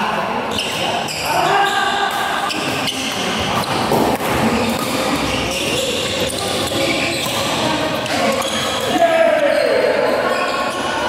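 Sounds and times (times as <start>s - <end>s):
rackets striking shuttlecock: 2.1s - 8.9s.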